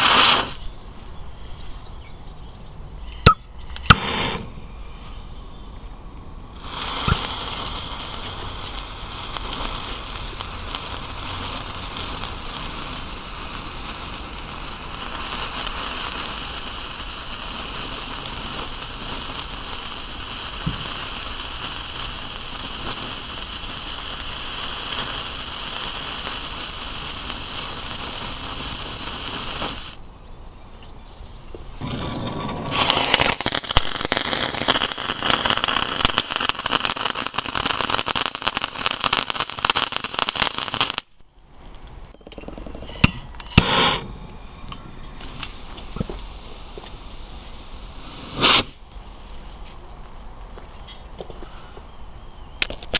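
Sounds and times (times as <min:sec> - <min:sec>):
firework fuse flaring: 0:00.0 - 0:00.7, 0:03.8 - 0:05.2, 0:06.5 - 0:30.0, 0:31.8 - 0:42.1, 0:42.8 - 0:50.1
fuse fizzing hiss: 0:00.0 - 0:00.7, 0:06.5 - 0:30.0, 0:43.4 - 0:49.7.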